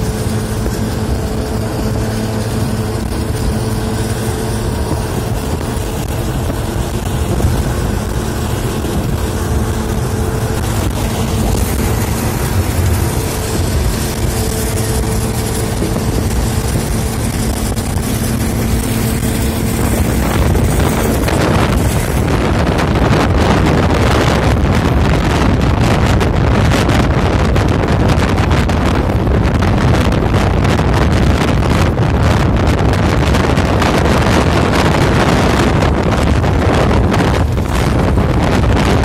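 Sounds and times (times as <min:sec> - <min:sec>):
bus engine and tyre drone: 0:00.0 - 0:39.0
constant hum: 0:00.0 - 0:39.0
rushing wind: 0:00.0 - 0:39.0.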